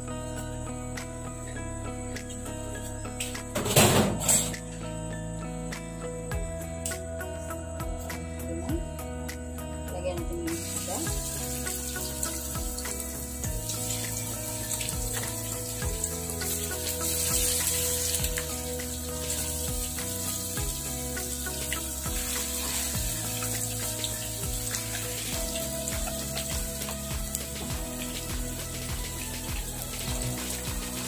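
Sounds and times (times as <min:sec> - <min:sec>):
background music: 0:00.0 - 0:31.0
fish sizzling in hot oil: 0:10.5 - 0:31.0.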